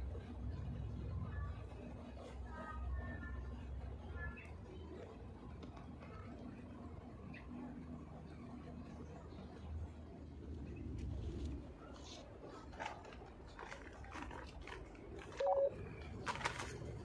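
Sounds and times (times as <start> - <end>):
plastic bag rustling: 12.1 - 17.0.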